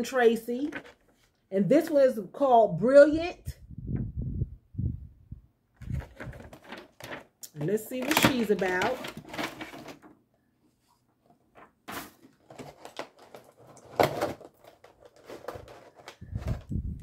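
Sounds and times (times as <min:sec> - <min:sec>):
packaging rustling: 0:05.8 - 0:10.1, 0:11.2 - 0:16.7.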